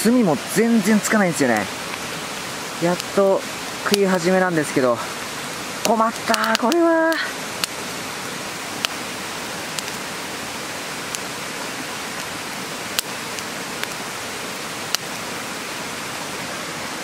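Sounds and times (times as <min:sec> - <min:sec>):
charcoal popping: 0:05.8 - 0:07.8, 0:09.7 - 0:10.0, 0:12.9 - 0:14.0.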